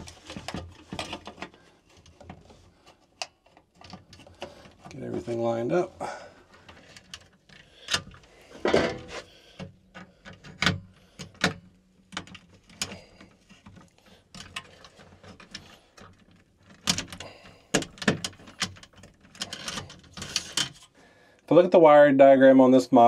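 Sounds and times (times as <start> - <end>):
screwdriver and wires clicking: 9.6 - 20.9.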